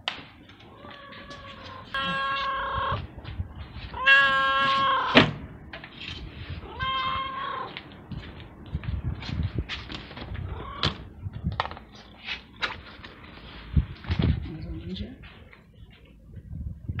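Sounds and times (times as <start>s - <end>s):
cat meowing: 0.6s - 3.0s, 3.9s - 5.2s, 6.6s - 7.8s, 10.4s - 11.0s.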